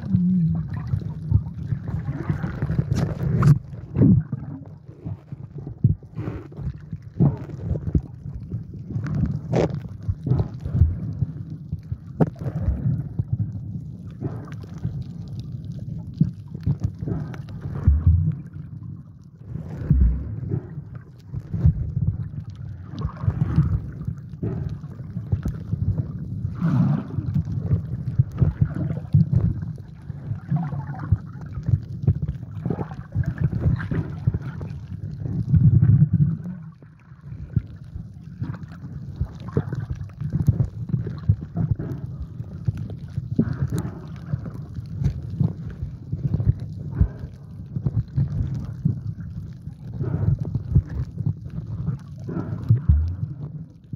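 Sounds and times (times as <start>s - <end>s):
underwater clicks and crackles: 0.0s - 53.9s
underwater rumble of moving water: 0.0s - 53.9s.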